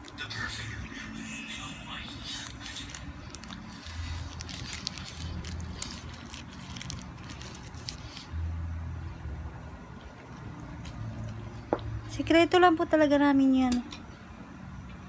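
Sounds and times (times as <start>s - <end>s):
chips crunching and chewing: 2.1s - 8.3s.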